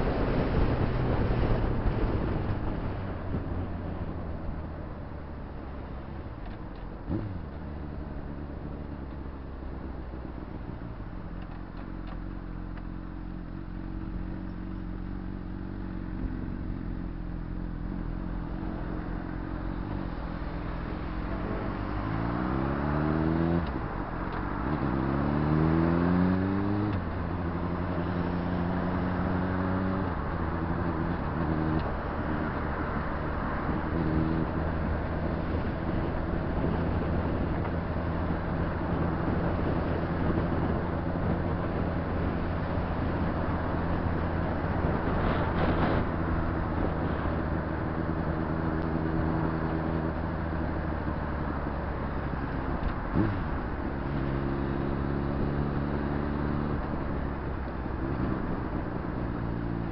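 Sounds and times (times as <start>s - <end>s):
rush of wind: 0.0s - 59.9s
motorcycle engine revving: 24.4s - 59.9s.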